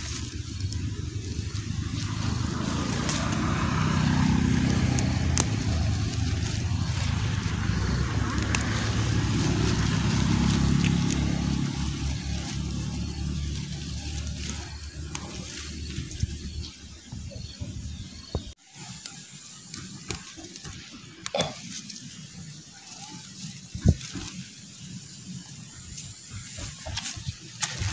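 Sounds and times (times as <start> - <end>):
stems snapping: 0.0 - 16.6
rustling of picked stems: 0.0 - 17.6
motor engine humming: 0.0 - 27.9.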